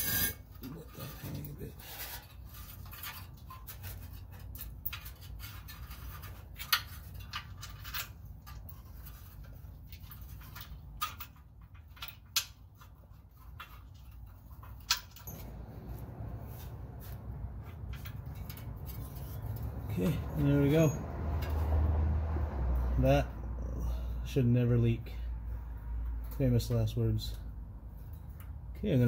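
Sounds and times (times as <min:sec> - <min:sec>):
hands scraping gaskets and bolts: 0:00.0 - 0:23.2
low steady hum: 0:02.5 - 0:24.3.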